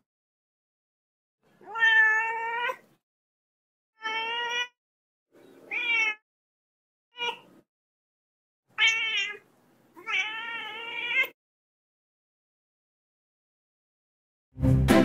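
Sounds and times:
kitten meowing: 1.6 - 2.8, 4.0 - 4.8, 5.7 - 6.2, 7.1 - 7.6, 8.8 - 9.4, 10.0 - 11.4.

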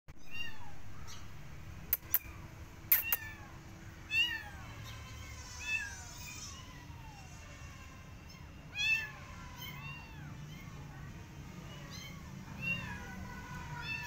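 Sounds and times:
sharp clicks: 1.9 - 2.3
cat meowing: 2.9 - 11.0, 11.7 - 14.0.

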